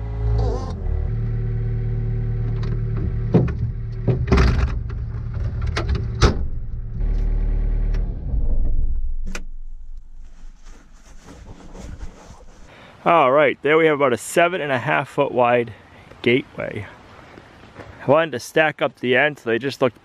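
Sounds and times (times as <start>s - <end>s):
window latch clunks: 2.5s - 6.6s.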